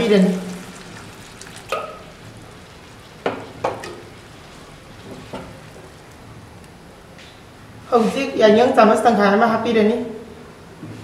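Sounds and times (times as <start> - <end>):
curry sizzling in a pan: 0.0 - 6.3
water pouring into pan: 0.1 - 6.1.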